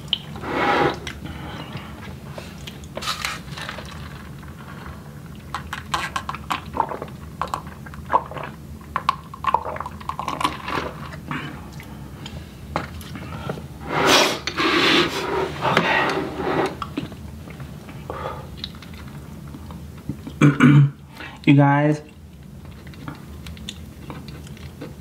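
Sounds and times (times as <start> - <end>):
smacking and chewing: 0.0 - 4.6, 16.7 - 20.4, 21.4 - 25.0.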